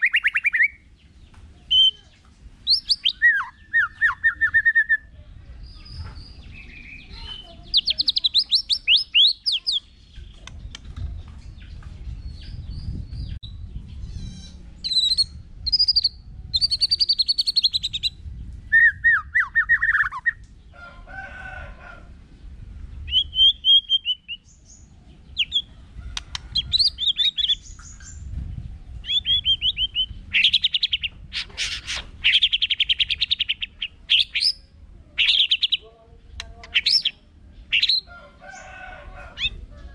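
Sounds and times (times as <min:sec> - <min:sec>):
songbird whistling and trilling: 0:00.0 - 0:00.8, 0:02.6 - 0:05.1, 0:05.8 - 0:10.8, 0:12.2 - 0:20.4, 0:23.0 - 0:34.6.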